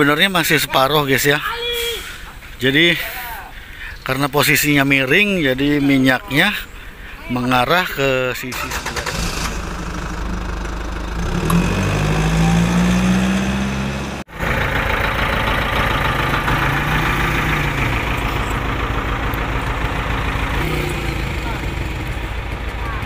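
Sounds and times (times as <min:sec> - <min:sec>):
engine running: 0:08.6 - 0:23.0.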